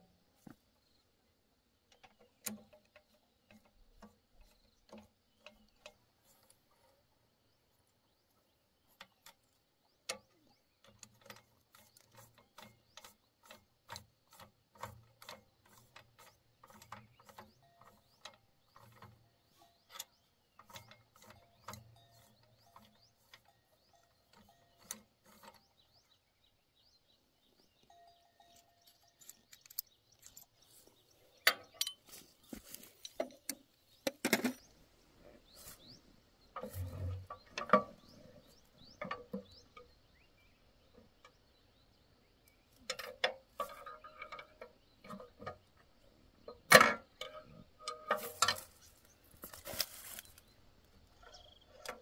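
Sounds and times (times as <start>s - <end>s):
metal clanks and rattles: 9.0s - 26.1s, 27.8s - 34.7s, 35.4s - 40.0s, 42.8s - 52.0s
metal tool clicks and clinks: 28.4s - 30.7s, 31.4s - 32.1s.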